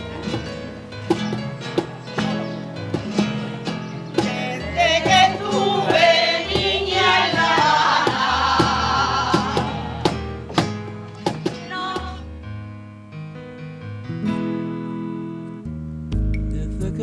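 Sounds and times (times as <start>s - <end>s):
strummed acoustic guitar: 0.0s - 12.2s
choir singing: 4.2s - 10.4s.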